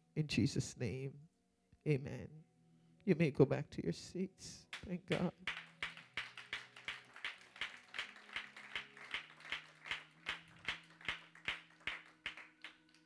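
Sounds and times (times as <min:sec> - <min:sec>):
hand claps in steady beat: 0:04.7 - 0:13.0.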